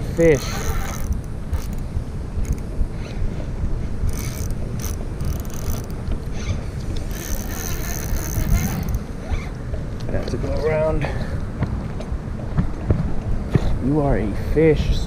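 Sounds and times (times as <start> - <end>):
wind rumble on microphone: 0.0 - 15.0
fishing reel whirring: 0.1 - 3.4, 4.0 - 9.6.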